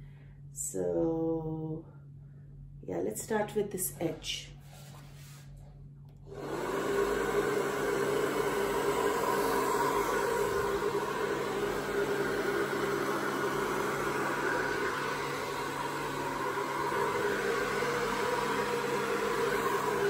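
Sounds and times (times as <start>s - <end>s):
hair dryer running: 6.2s - 20.0s.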